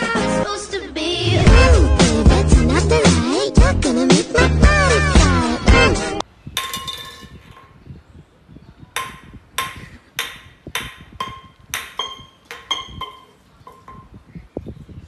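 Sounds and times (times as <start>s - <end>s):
tin can clattering on concrete: 6.6s - 7.7s.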